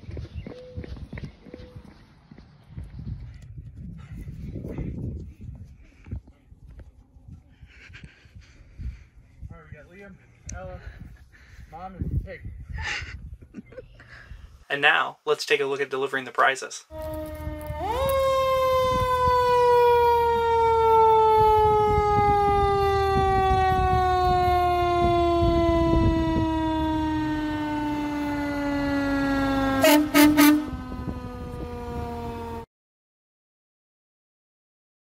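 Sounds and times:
truck engine rumble: 16.9s - 32.6s
fire truck siren wailing: 16.9s - 32.7s
truck horn blasts: 21.4s - 32.6s.

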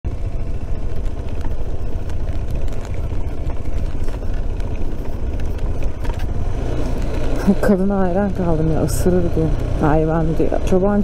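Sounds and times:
motorcycle engine: 0.0s - 11.0s
wind rumble: 0.1s - 11.0s.

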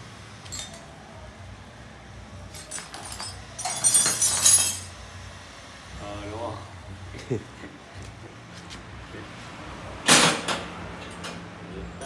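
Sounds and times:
jingling clinks: 0.4s - 0.9s, 2.5s - 4.9s
metal parts clinking and rattling: 0.4s - 0.9s, 2.5s - 4.9s.

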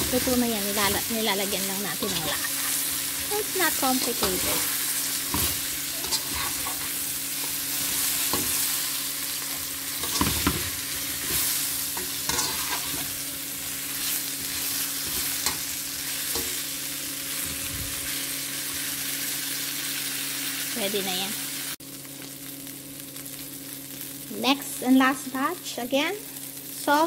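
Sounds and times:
shrimp sizzling in a pan: 0.0s - 27.0s
skimmer scraping and tapping pan: 9.4s - 13.2s.

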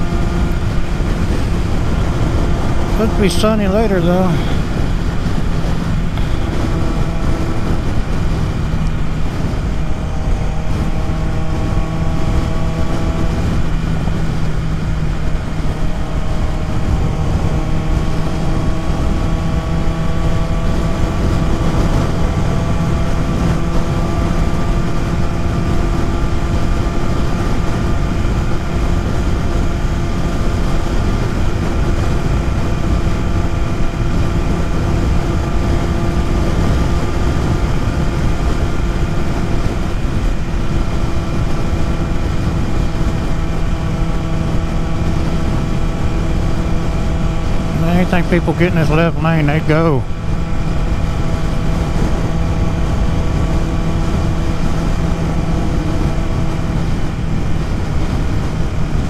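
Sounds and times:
motorcycle engine running: 0.0s - 59.0s
wind rush: 0.0s - 59.0s.

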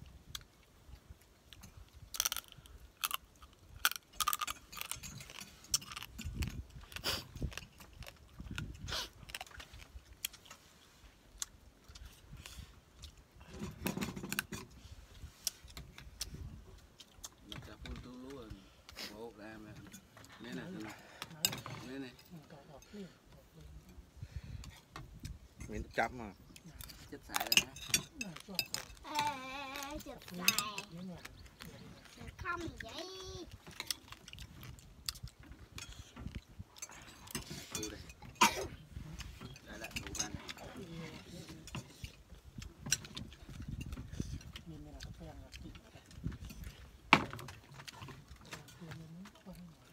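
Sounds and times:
chewing and crunching: 0.0s - 49.9s
chewing food with wet smacks: 33.5s - 37.0s.

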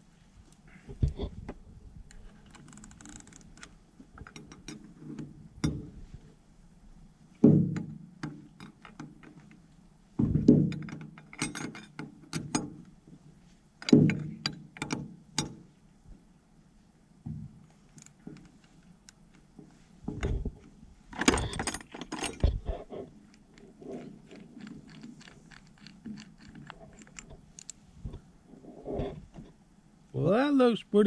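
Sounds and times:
heavy metal clunks: 7.4s - 8.4s, 13.8s - 15.6s.

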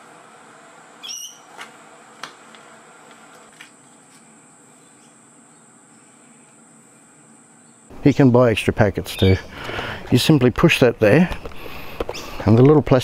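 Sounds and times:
steady high-pitched hum: 0.0s - 13.0s
short chirping call: 1.0s - 1.5s.

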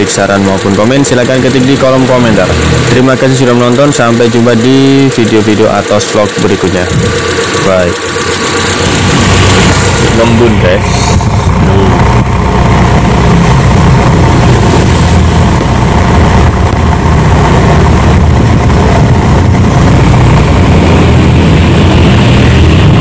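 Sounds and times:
car exhaust idling: 0.0s - 23.0s.

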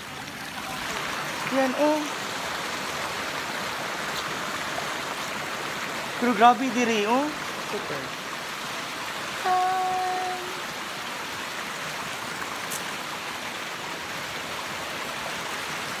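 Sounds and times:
heavy rain: 0.0s - 16.0s.

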